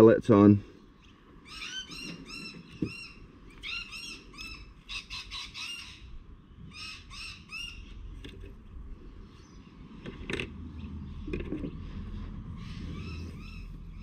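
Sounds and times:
bird calling harsh notes: 0.7 - 8.1, 10.7 - 14.0.

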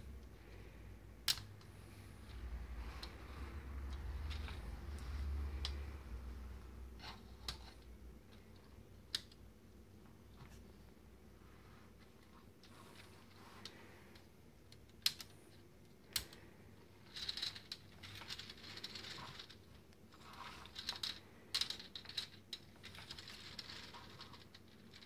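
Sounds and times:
plastic gears clicking and rattling: 17.0 - 25.0.

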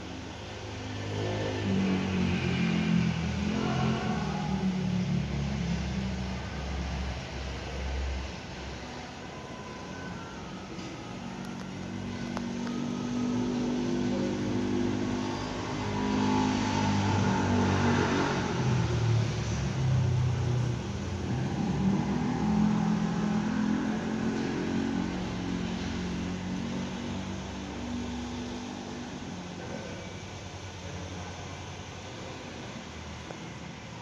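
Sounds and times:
vehicle engine revving: 0.0 - 34.0.

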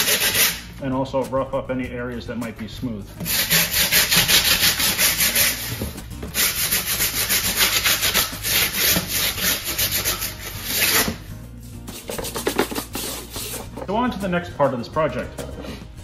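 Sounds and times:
brush scrubbing foam board: 0.0 - 0.6, 3.2 - 13.9.

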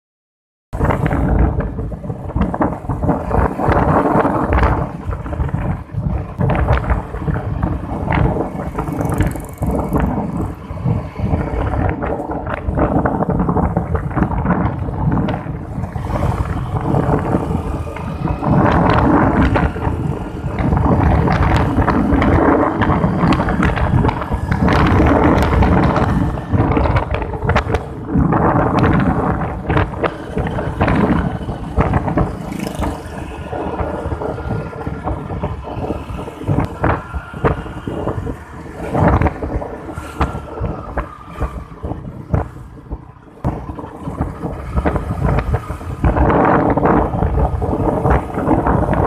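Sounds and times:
wind rushing over microphone: 0.7 - 49.0
tyres on wet road: 0.8 - 49.0
motorcycle engine: 6.4 - 13.7, 14.4 - 38.2.

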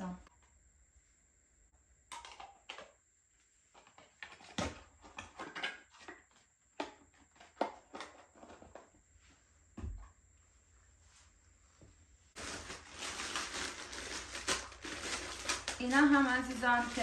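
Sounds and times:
jars and boxes tapping and rustling: 3.7 - 8.9, 14.4 - 17.0.

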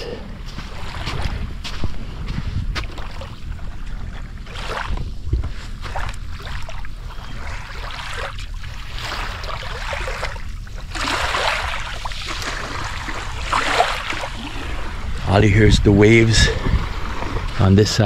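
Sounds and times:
small waves washing on sand: 0.0 - 15.2
wind rumble on microphone: 0.0 - 18.0.

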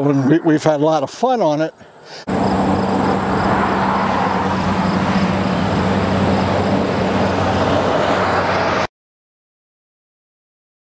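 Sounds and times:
highway traffic noise: 0.0 - 8.9
low engine hum: 1.8 - 8.9.

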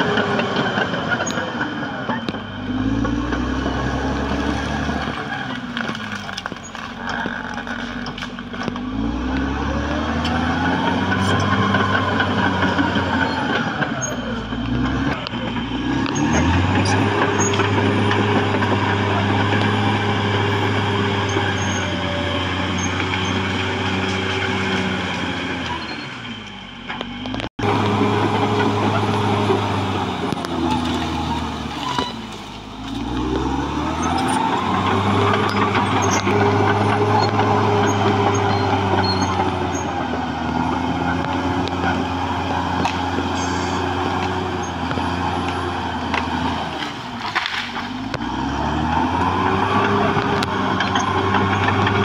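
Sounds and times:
steel tracks clanking: 0.0 - 8.9, 10.1 - 48.1
bulldozer diesel engine working: 0.0 - 52.0.

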